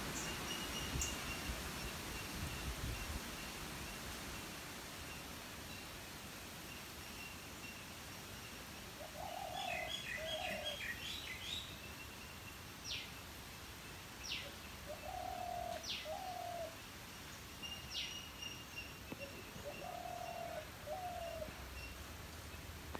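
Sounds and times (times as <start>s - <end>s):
dove cooing: 9.0s - 10.8s, 14.8s - 16.8s, 19.2s - 21.6s.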